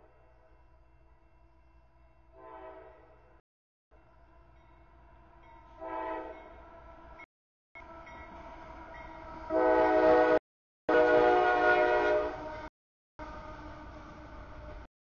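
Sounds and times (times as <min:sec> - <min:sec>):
low train rumble: 0:00.0 - 0:14.9
locomotive air horn blasts: 0:02.4 - 0:03.0, 0:05.8 - 0:06.6, 0:09.5 - 0:12.6.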